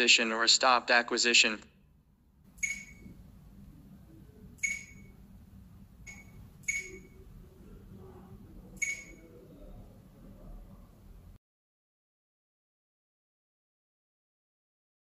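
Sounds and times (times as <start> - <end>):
faint low hum: 0.0 - 11.4
touchscreen click-beeps: 2.6 - 3.1, 4.6 - 5.1, 6.0 - 7.2, 8.8 - 9.3.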